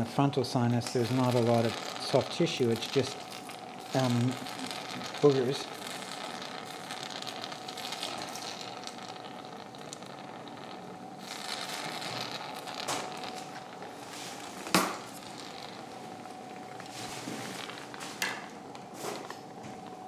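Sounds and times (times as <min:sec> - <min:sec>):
suction tube sucking hiss: 0:01.0 - 0:15.8.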